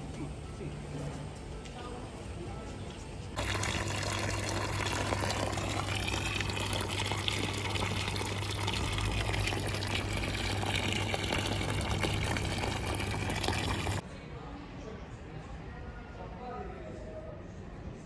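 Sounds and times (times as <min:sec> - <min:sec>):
water splashing onto stone: 0:03.4 - 0:14.0.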